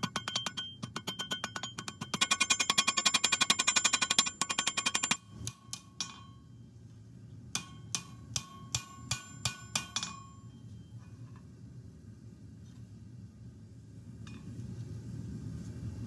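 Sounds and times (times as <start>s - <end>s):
hammer blows ringing on anvil: 0.0s - 6.6s, 7.6s - 10.9s.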